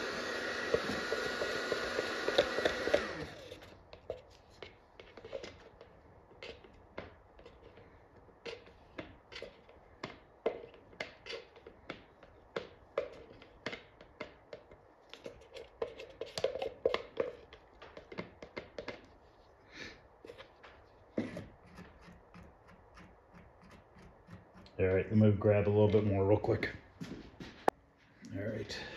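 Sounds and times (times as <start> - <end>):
stir stick scraping plastic cup: 0.0 - 25.0.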